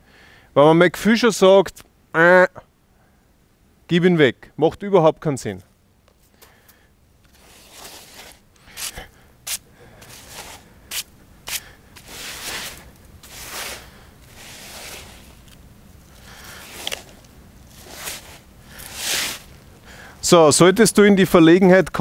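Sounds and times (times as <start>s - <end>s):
stone block scraping in sand: 7.3s - 9.0s, 10.0s - 15.6s, 16.4s - 19.6s.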